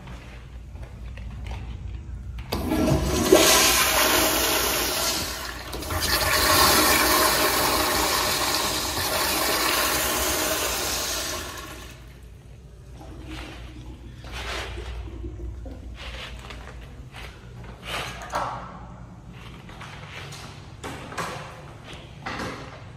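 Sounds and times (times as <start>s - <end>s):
toilet flushing: 2.5s - 16.7s.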